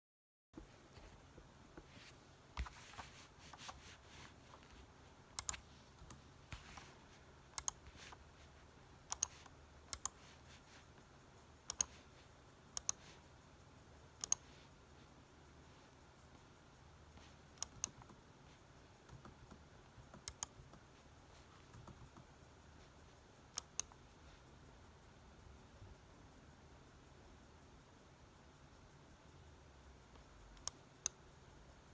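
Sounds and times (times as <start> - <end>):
faint room hiss: 0.6 - 31.9.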